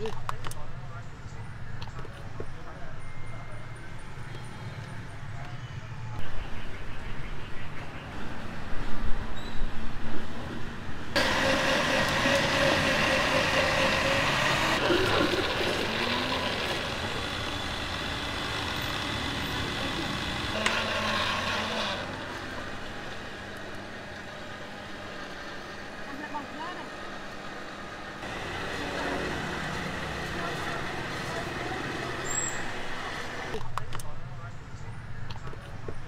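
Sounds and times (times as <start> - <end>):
blender motor running: 11.2 - 22.9, 28.2 - 31.3.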